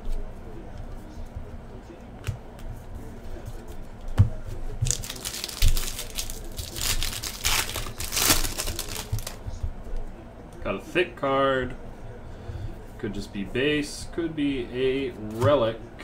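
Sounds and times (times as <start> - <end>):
foil wrapper tearing and crinkling: 4.8 - 9.4.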